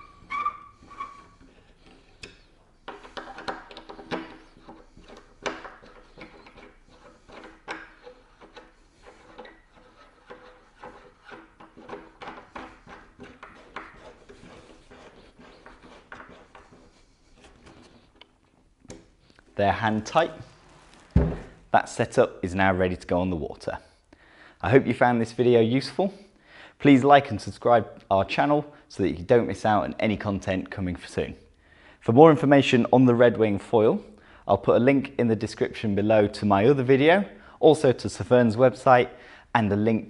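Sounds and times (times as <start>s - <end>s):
bolts screwed in by hand: 0.0s - 19.4s.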